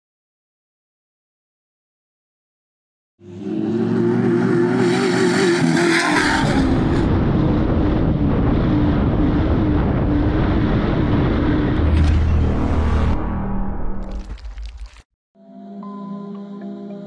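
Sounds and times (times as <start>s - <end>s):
race vehicle engine revving high: 3.2s - 11.8s
rushing noise: 6.4s - 15.0s
deep rumble: 6.6s - 15.0s.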